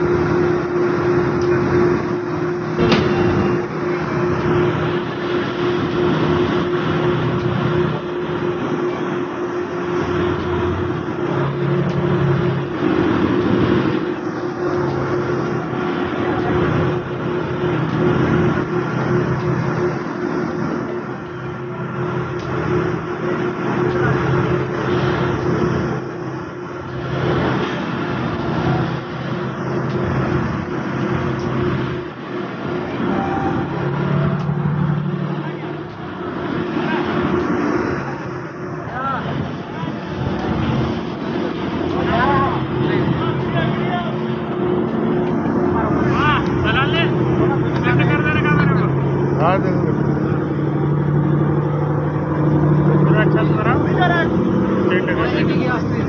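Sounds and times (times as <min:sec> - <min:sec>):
crane engine running under load: 0:00.0 - 0:56.0.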